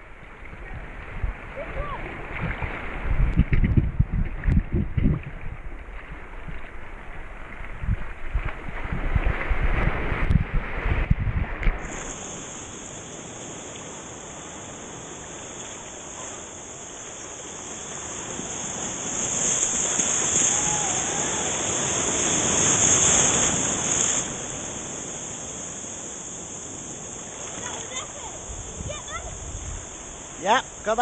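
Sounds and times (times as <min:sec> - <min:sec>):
surf rushing and fizzing: 0:00.0 - 0:31.0
steady high hiss: 0:11.8 - 0:31.0.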